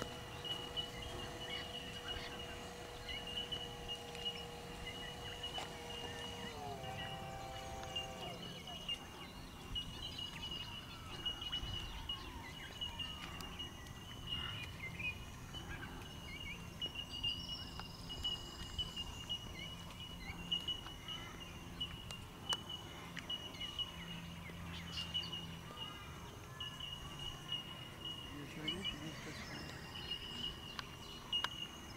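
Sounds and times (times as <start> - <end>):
bird chirps: 0.0 - 31.9
high-pitched insect trill: 9.7 - 31.9.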